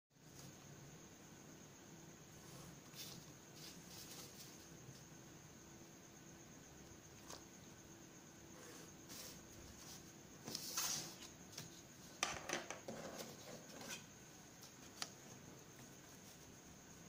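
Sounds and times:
paper rustling scrape: 9.1s - 11.7s.

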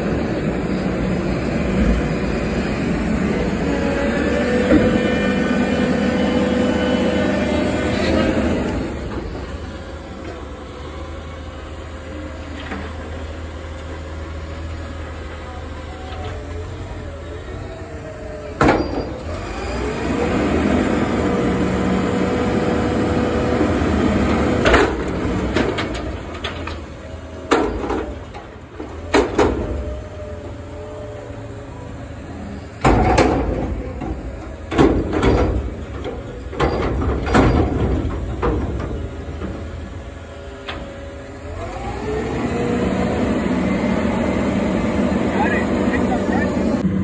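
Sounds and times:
hydraulics whining: 0.0s - 47.0s
truck engine revving: 0.0s - 47.0s
metal bangs and clanks: 27.5s - 29.9s, 32.8s - 39.9s.

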